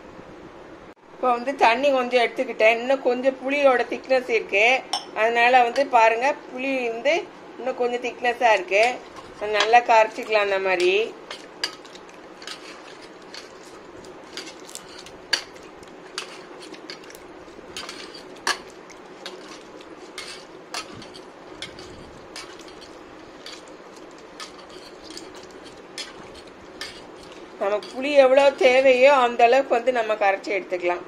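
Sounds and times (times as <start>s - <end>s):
hand and strainer clinking on steel: 9.6s - 29.1s.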